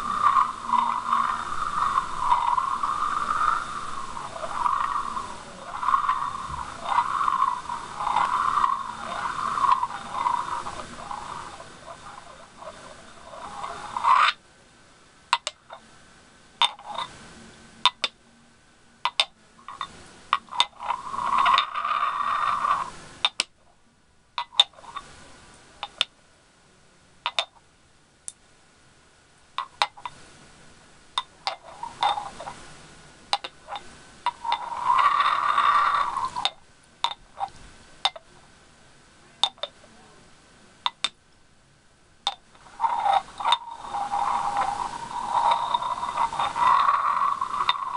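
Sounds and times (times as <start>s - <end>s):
glass grinding on glass: 0.0s - 14.4s, 19.7s - 23.0s, 31.4s - 32.6s, 33.4s - 37.5s, 42.3s - 47.9s.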